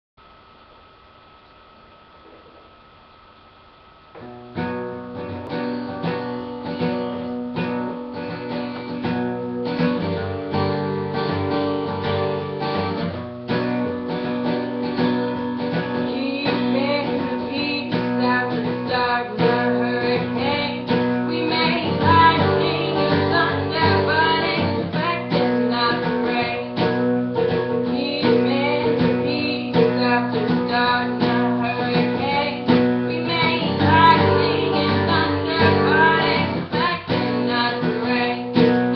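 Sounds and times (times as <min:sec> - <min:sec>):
acoustic guitar strumming: 0:04.2 - 0:38.9
woman singing: 0:15.8 - 0:38.9.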